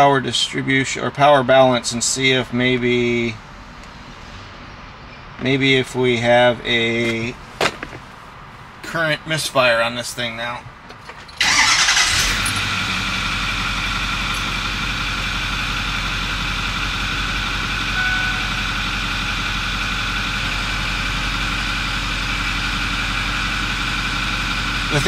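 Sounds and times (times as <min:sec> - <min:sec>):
diesel engine idling: 0:10.8 - 0:25.0.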